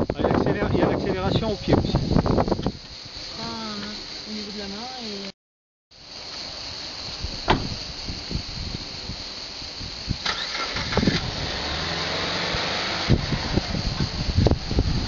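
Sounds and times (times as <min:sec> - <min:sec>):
sharp knocks and clunks: 0:07.4 - 0:07.8
car engine starting and running: 0:10.2 - 0:15.0.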